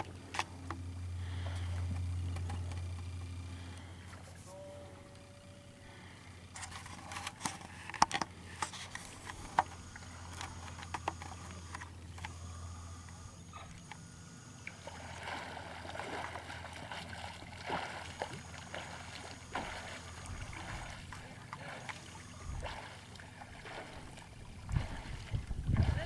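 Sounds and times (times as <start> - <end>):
water splashing around a swimmer: 14.6 - 26.0.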